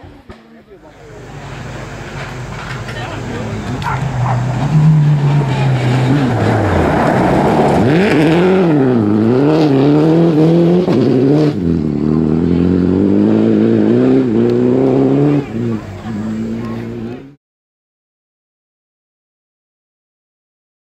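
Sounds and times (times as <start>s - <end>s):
rally car engine revving: 0.3s - 17.4s.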